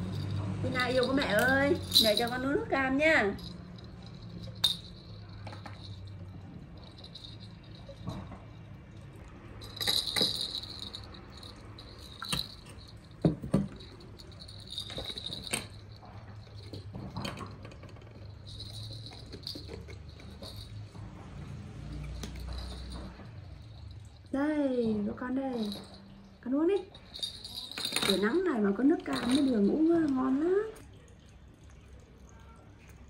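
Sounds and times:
toy rattle jingling: 0.0 - 8.7, 9.6 - 24.4, 25.5 - 26.2, 26.8 - 30.2
juice pouring: 30.8 - 33.0.

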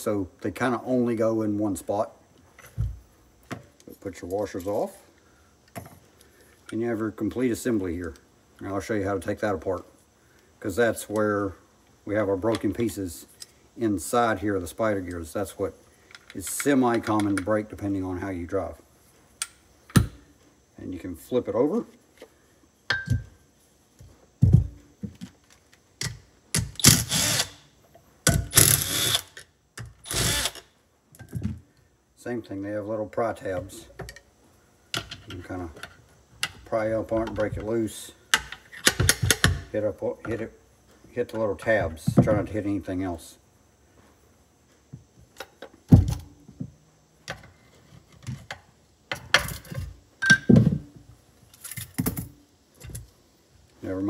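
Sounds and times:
cordless driver whirring: 26.8 - 27.6, 28.5 - 29.4, 30.1 - 30.6.

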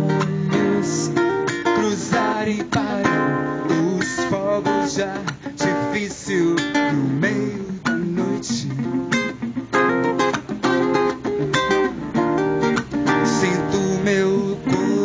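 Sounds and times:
guitar picking melodic lines: 0.0 - 15.0
strummed acoustic guitar: 0.0 - 15.0.

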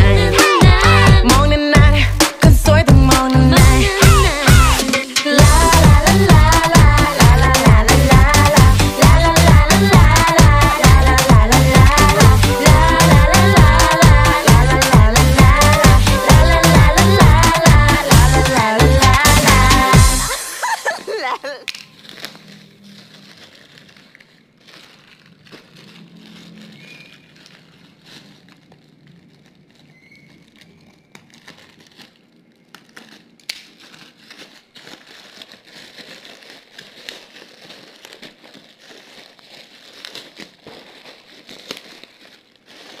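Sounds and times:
plastic packaging crinkling: 20.3 - 43.0
small clicks and crackles: 21.6 - 43.0.

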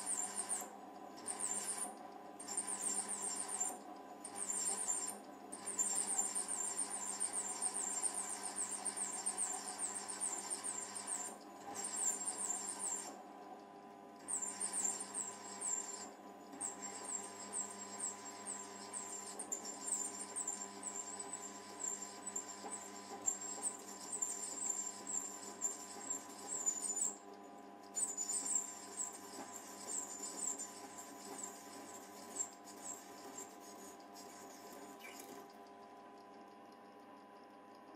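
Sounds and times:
lathe tool squealing: 5.8 - 13.1.

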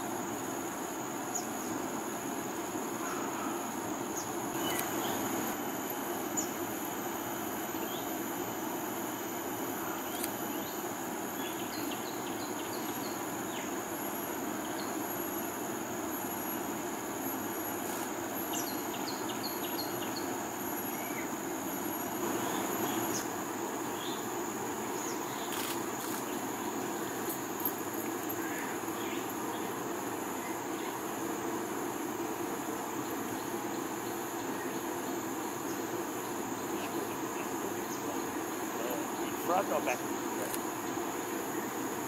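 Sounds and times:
insects buzzing: 0.0 - 42.0
small birds chirping: 3.0 - 5.6.

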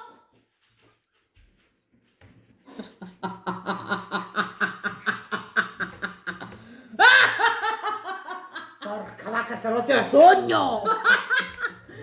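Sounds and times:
women laughing: 2.7 - 9.1, 10.8 - 12.0.

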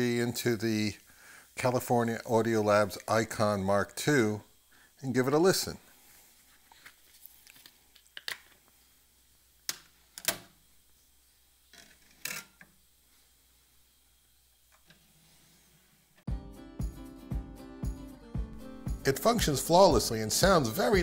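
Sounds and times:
music with a steady beat: 16.3 - 21.0.

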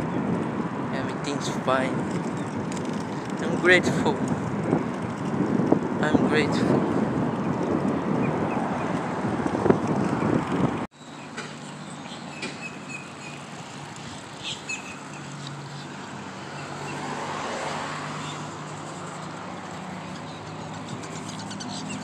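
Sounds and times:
wind buffeting microphone: 0.0 - 10.9
passing road vehicle hum: 0.0 - 22.0
bird chirps: 14.4 - 15.3.

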